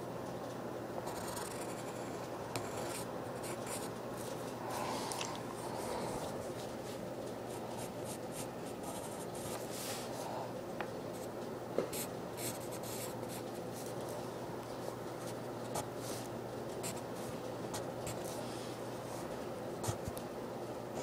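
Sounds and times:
pen scratching on paper: 0:01.1 - 0:03.9, 0:12.0 - 0:13.4.

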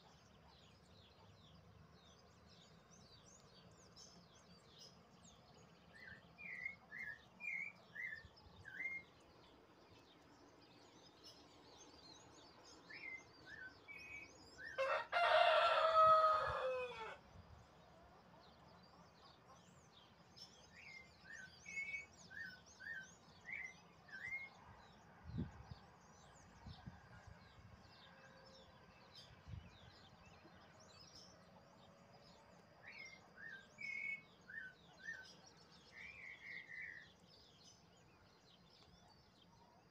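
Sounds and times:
small birds chirping: 0:00.0 - 0:27.8, 0:28.6 - 0:39.9
rooster crowing: 0:14.8 - 0:17.2.

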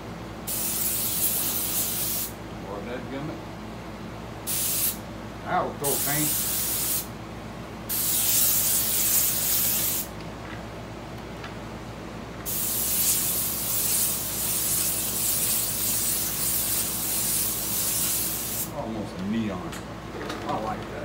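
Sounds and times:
airbrush spraying: 0:00.5 - 0:02.4, 0:04.5 - 0:05.0, 0:05.9 - 0:07.1, 0:07.9 - 0:10.1, 0:12.5 - 0:18.7.

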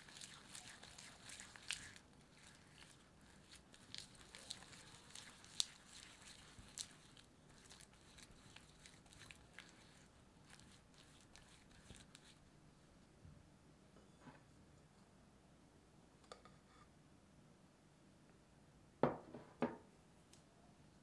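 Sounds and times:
spatula scraping sticky paste: 0:00.0 - 0:12.4.

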